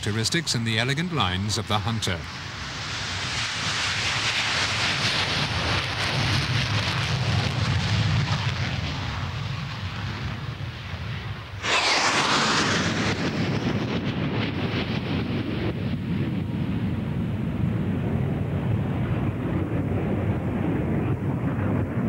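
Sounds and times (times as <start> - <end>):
jet engine roar: 0.0 - 22.0
jets flying past with falling whine: 11.3 - 16.1.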